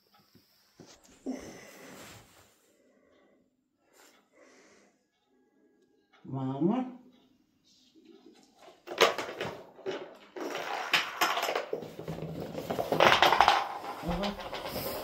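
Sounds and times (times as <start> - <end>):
small object clattering on wooden floor: 8.8 - 15.0.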